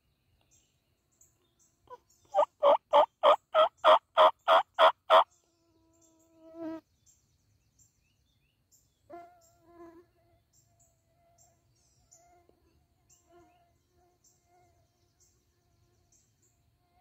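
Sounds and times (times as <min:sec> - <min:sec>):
turkey yelps: 0:01.9 - 0:05.2.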